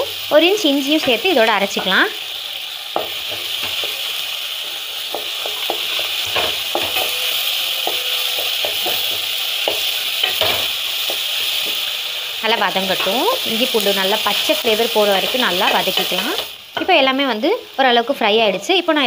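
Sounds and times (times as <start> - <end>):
paste sizzling in oil: 0.0 - 19.0
spatula scraping and knocking pot: 5.0 - 11.9.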